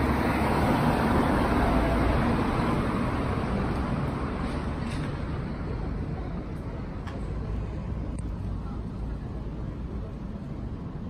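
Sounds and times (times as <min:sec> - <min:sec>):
passing cars rumbling: 0:00.0 - 0:11.0.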